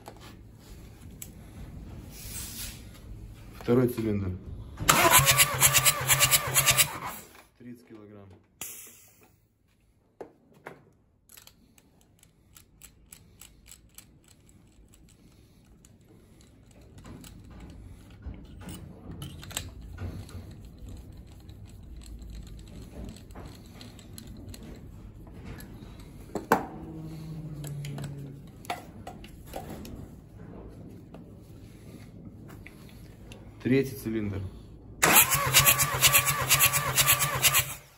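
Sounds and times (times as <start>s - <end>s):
clicks and rattles of tools: 10.3s - 26.6s.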